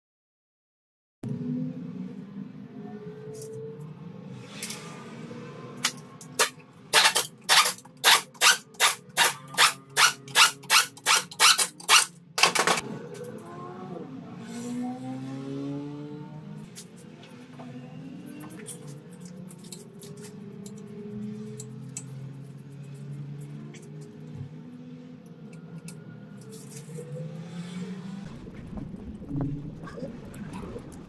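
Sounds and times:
pneumatic wrench bursts: 6.4 - 12.1.

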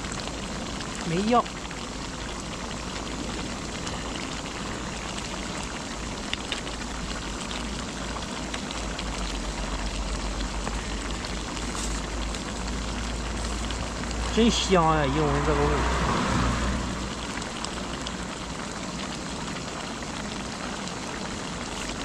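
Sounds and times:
stew bubbling and hissing: 0.0 - 22.0.

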